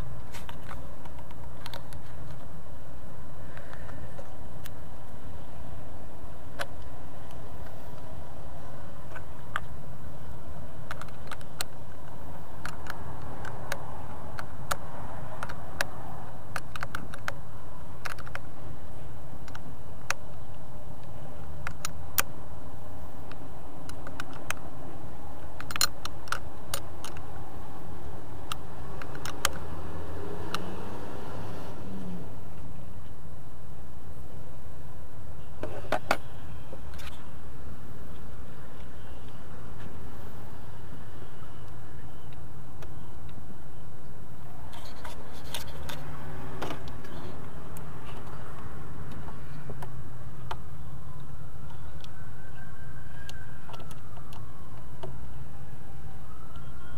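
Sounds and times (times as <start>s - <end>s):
sharp clicks: 19.4s - 22.4s, 25.6s - 27.3s, 28.4s - 29.8s.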